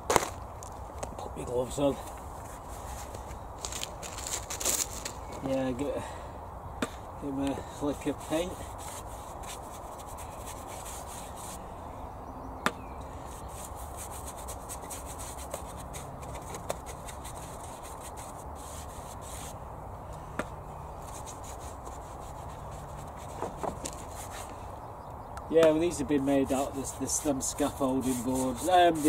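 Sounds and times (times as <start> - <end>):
paintbrush scratching on wood: 7.8 - 11.6, 13.3 - 19.6, 21.0 - 24.5, 25.9 - 29.0.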